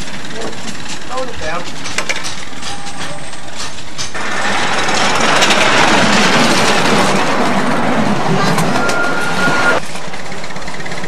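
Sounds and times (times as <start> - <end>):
sharp clicks and knocks: 0.4 - 7.3
steam hissing: 2.5 - 10.4.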